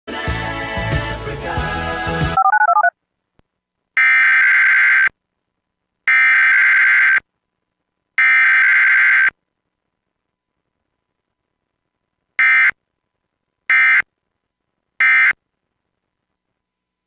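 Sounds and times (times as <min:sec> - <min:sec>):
background music: 0:00.1 - 0:02.4
buzzing digital data tones: 0:04.0 - 0:05.2, 0:08.2 - 0:09.4.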